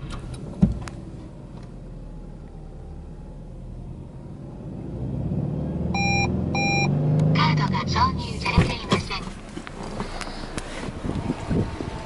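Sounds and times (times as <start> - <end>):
car engine idling: 0.0 - 4.8, 7.4 - 12.0.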